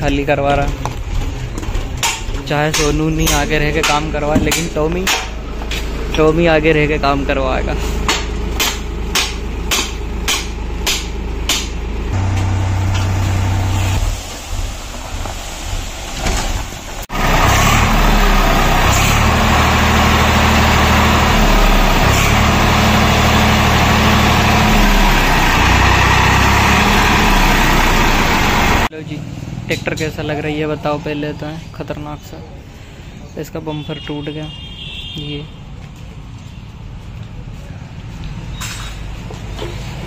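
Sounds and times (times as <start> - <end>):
tractor diesel engine running: 0.1 - 14.3, 16.9 - 28.9
strong hiss: 13.7 - 17.1.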